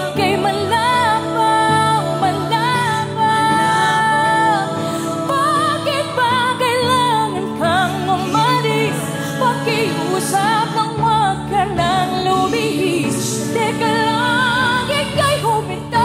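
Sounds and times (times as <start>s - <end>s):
woman singing pop ballad: 0.0s - 16.0s.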